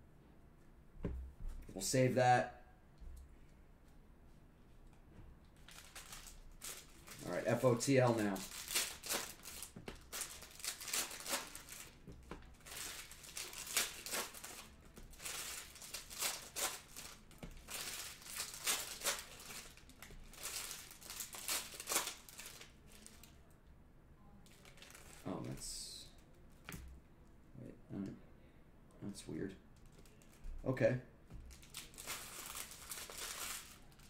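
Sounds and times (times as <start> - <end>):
foil wrappers crinkling and tearing: 5.6 - 23.3, 24.5 - 25.6, 31.4 - 34.0.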